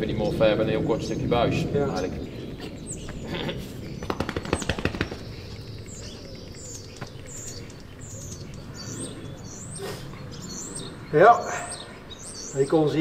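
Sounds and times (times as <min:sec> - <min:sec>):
small birds chirping: 0:00.0 - 0:13.0
rapid sharp clicks: 0:04.0 - 0:08.7.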